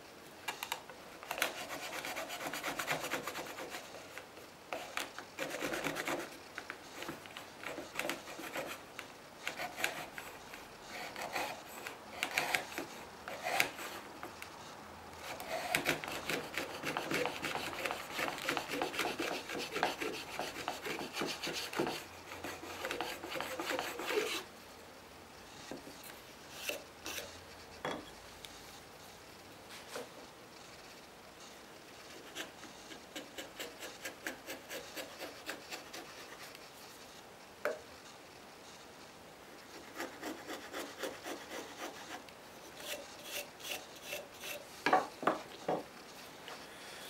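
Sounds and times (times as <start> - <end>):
hand plane scraping wood: 15.2 - 24.4, 39.8 - 45.8.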